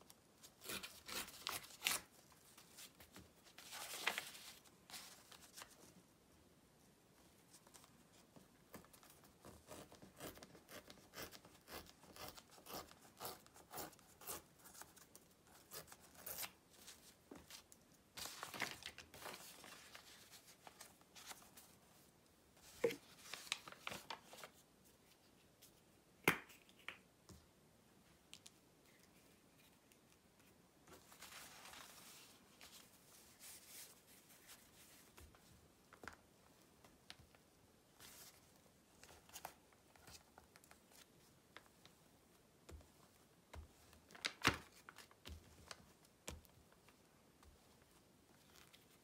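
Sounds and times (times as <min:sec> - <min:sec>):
paper rustling: 0:00.7 - 0:05.9, 0:16.1 - 0:21.9, 0:22.6 - 0:25.3, 0:30.4 - 0:36.2.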